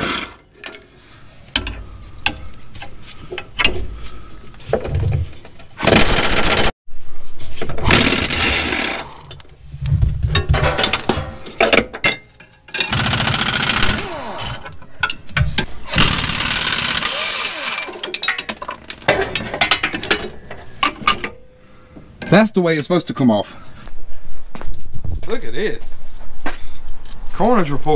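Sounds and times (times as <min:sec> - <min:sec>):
pneumatic impact wrench hammering: 0:05.8 - 0:06.7, 0:07.8 - 0:09.3, 0:12.8 - 0:20.2.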